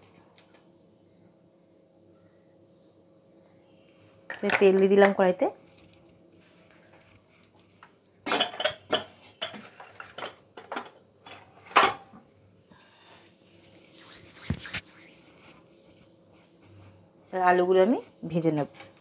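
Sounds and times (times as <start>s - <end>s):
utensils and dishes clattering: 8.2s - 12.1s.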